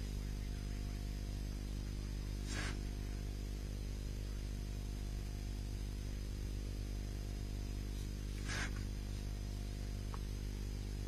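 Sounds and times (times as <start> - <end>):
steady low hum with buzz: 0.0 - 11.0
soft hissing swish: 2.4 - 3.0, 7.9 - 9.3.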